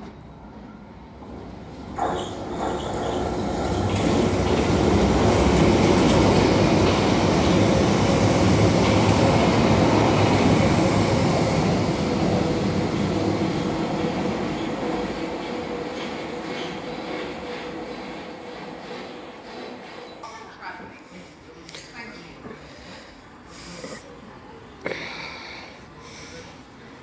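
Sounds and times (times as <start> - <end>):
train wheels rumbling on rail: 1.2 - 21.0.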